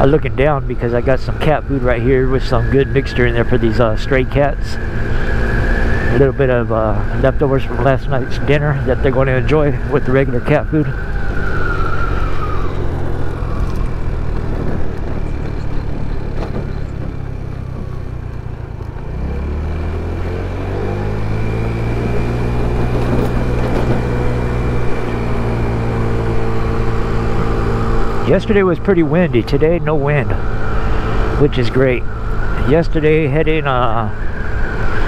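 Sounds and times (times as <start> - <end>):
scooter engine revving: 10.4 - 32.6.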